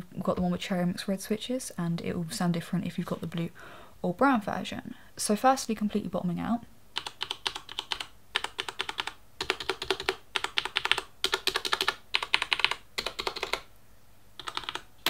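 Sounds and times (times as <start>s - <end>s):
mechanical keyboard typing: 7.0s - 13.7s, 14.4s - 14.9s.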